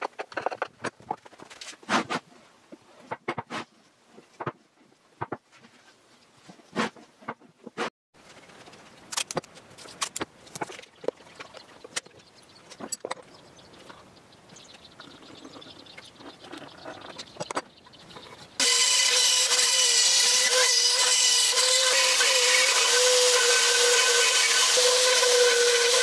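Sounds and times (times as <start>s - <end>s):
rotary tool whine cutting wood: 18.6s - 26.0s.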